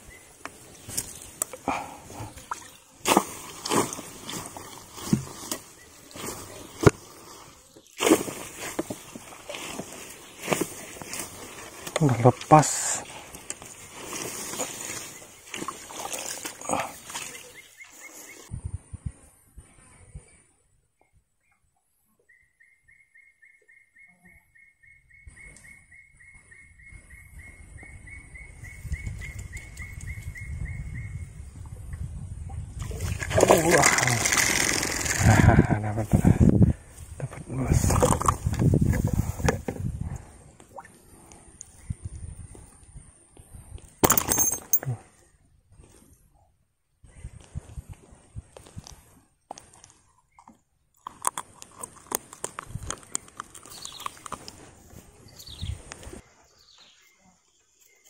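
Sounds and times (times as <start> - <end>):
paddle swishing through plants: 0.6 - 12.2, 12.9 - 18.5
bird chirping: 21.0 - 31.4, 53.0 - 54.4, 55.2 - 58.0.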